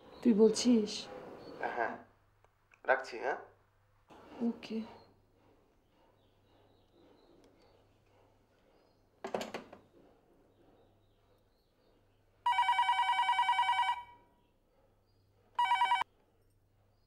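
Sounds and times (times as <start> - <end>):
telephone ringing electronic trill: 12.5 - 14.1, 15.6 - 16.0.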